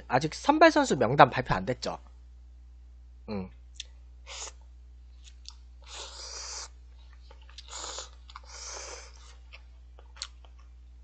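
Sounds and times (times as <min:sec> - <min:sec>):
person slurping noodles: 0:04.3 - 0:04.6, 0:05.8 - 0:06.8, 0:07.6 - 0:09.4.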